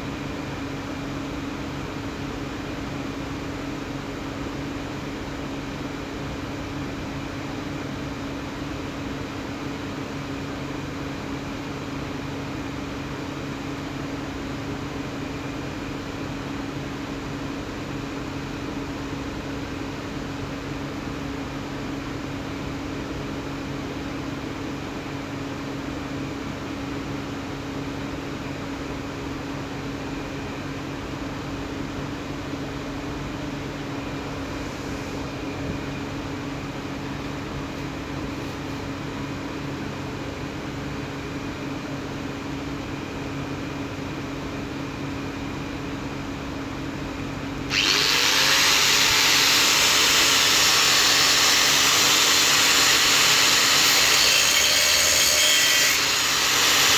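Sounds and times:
angle grinder motor whine: 47.7 - 56.9
grinder cutting steel bar: 47.7 - 56.9.

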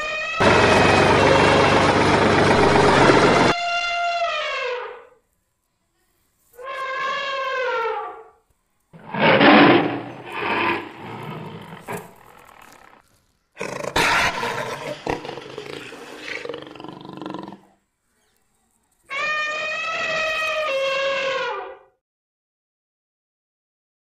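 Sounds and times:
tiger roaring: 9.0 - 17.8.

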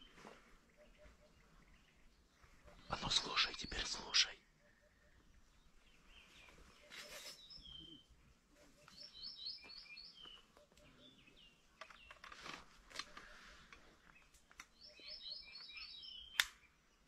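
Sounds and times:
songbird chirping: 0.0 - 17.0
faint clicks or rustles: 11.7 - 14.8.

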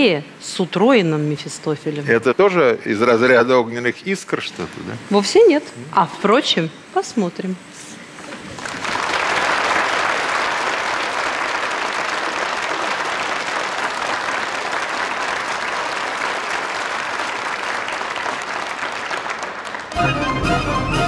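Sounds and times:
large audience applauding: 8.2 - 21.0.

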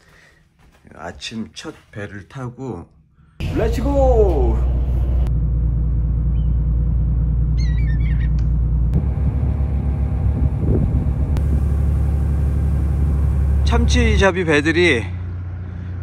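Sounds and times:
boat engine droning: 3.4 - 16.0
bird chirps: 6.3 - 6.7, 7.5 - 8.5.

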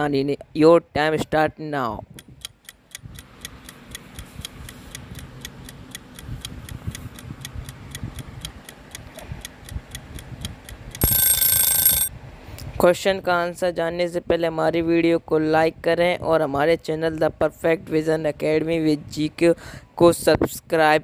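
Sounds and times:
clock ticking: 2.1 - 12.1
alarm bell ringing: 11.0 - 12.1.

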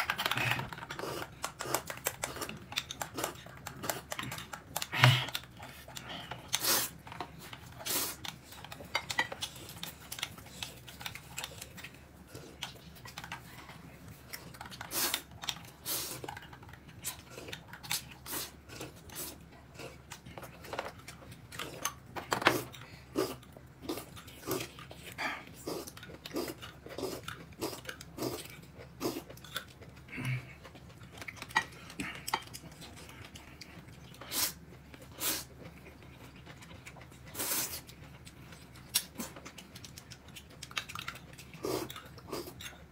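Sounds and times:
person chewing: 0.0 - 42.9.

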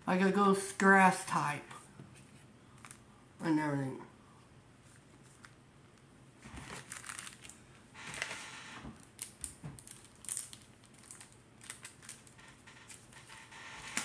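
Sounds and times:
wrappers crinkling: 6.4 - 8.4, 9.0 - 14.0.

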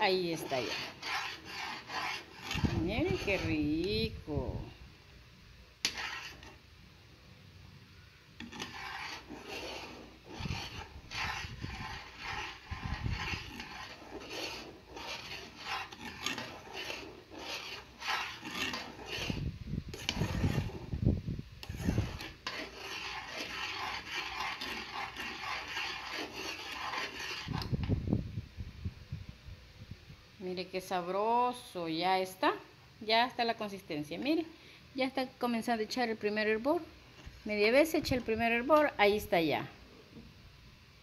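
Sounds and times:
metal spoon scraping a saucepan: 0.1 - 4.5, 5.8 - 6.6, 8.4 - 20.9, 21.6 - 27.8.

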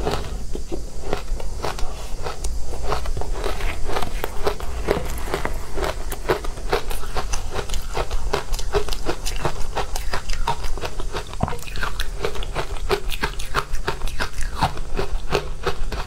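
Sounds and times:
ice crunching being chewed: 1.0 - 16.0.

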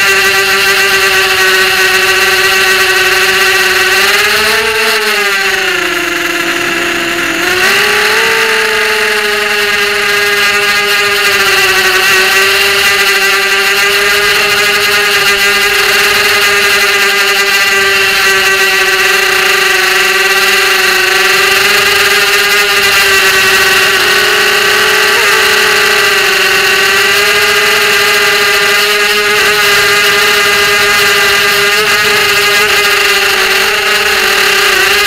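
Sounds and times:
drone motors whining: 0.0 - 35.0.

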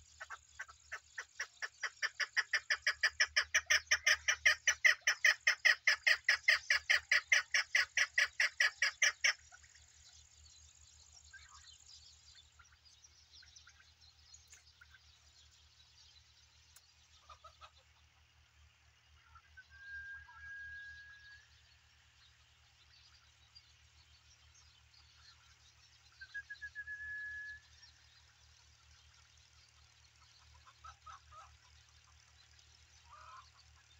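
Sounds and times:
partridge chuk calls: 0.0 - 10.1, 16.6 - 18.4, 29.1 - 33.9.

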